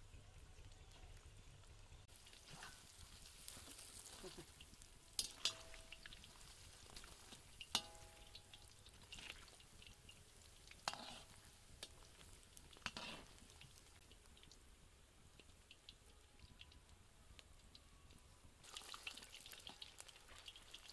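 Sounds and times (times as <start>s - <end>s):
food deep-frying in oil: 0.2s - 17.9s, 18.6s - 20.9s
metal skimmer scraping pan: 2.3s - 3.0s, 5.2s - 6.2s, 10.8s - 12.1s, 12.8s - 13.5s.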